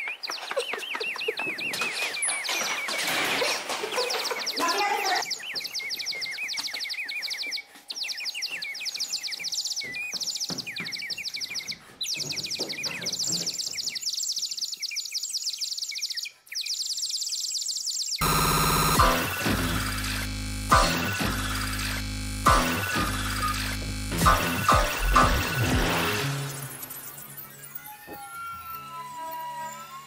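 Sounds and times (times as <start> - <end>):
birds chirping: 0.0 - 28.8
harsh electronic buzz: 18.2 - 30.0.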